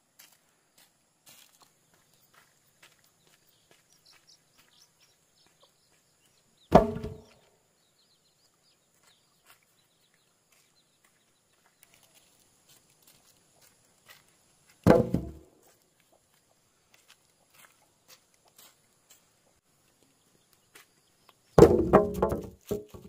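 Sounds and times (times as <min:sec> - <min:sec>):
faint bird chirps: 0:01.9 - 0:12.4
heavy wooden thud: 0:06.7 - 0:07.3, 0:14.9 - 0:15.4, 0:21.6 - 0:23.0.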